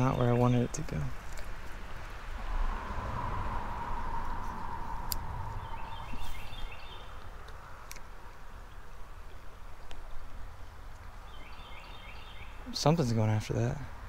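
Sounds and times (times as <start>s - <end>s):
songbird chirping: 0.0s - 13.9s
creek background: 0.0s - 14.0s
low handling rumble: 2.3s - 7.5s.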